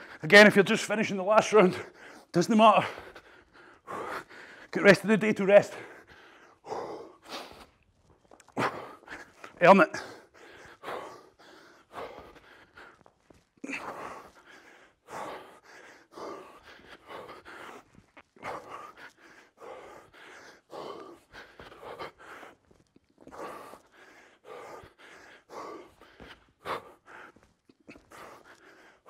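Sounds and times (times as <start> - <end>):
man breathing hard: 1.2 - 29.0.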